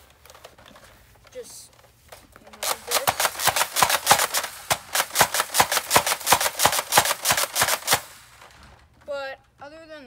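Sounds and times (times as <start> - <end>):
toy blaster plastic clacks: 2.5 - 8.2.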